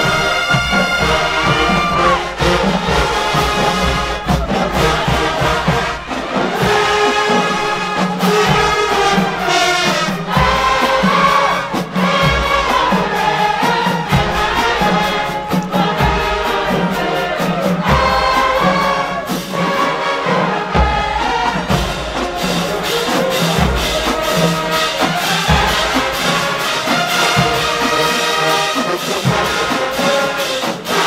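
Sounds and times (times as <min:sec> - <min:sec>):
brass section chords: 0:00.0 - 0:31.0
drum and cymbal strokes: 0:00.0 - 0:31.0.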